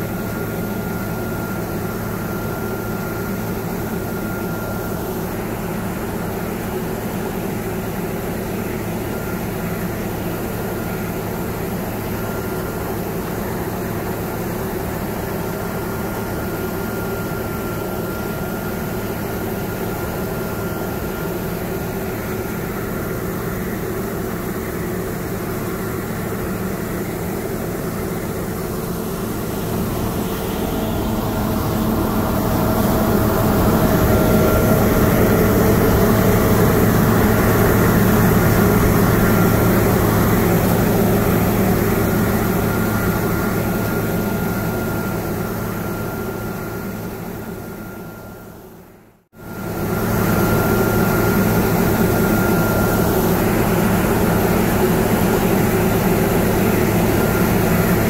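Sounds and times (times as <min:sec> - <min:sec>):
combine harvester drone: 0:00.0 - 0:58.0
thin whine: 0:11.8 - 0:48.5.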